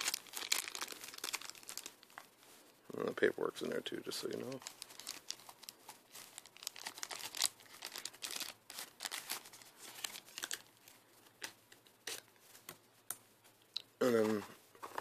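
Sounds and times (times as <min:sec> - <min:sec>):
paper and plastic bag rustling: 0:00.0 - 0:02.6, 0:04.1 - 0:11.0.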